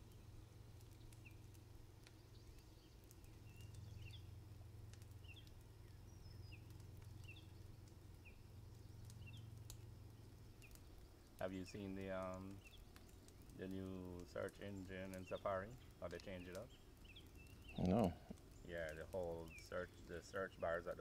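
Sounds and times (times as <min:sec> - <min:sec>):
faint steady low hum: 0:00.0 - 0:21.0.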